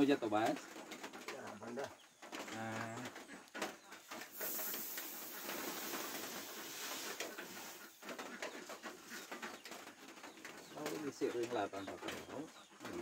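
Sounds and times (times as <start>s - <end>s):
grain pouring into metal hopper: 4.4s - 7.8s.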